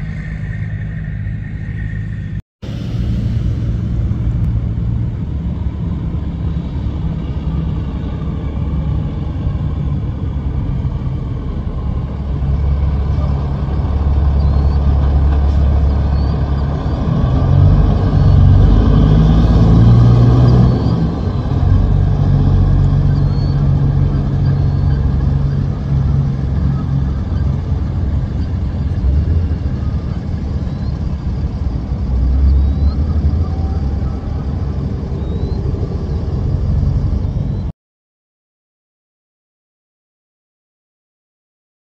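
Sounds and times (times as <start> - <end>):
diesel truck engine: 0.0 - 37.7
faint high chirps: 14.2 - 37.7.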